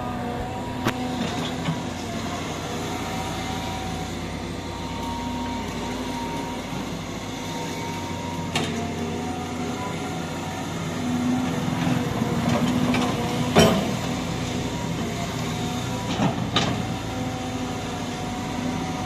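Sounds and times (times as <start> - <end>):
diesel engine running: 0.0 - 19.0
hydraulic whine: 0.0 - 19.0.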